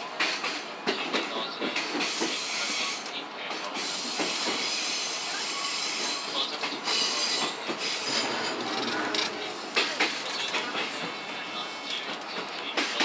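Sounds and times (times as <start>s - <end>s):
high-pitched wheel squeal: 7.0s - 9.7s.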